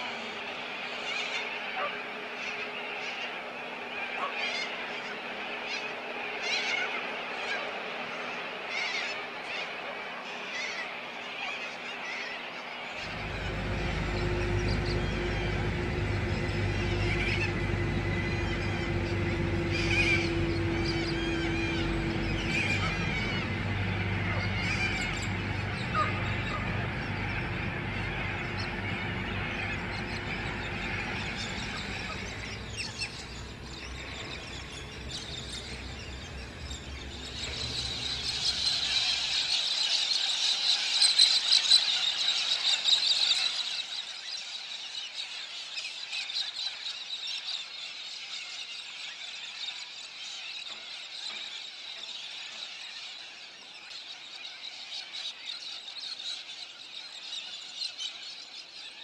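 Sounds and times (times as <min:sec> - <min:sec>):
bird calls: 0:00.0 - 0:59.0
ferry low hum: 0:13.0 - 0:39.6
high shrill squeal: 0:13.0 - 0:39.8.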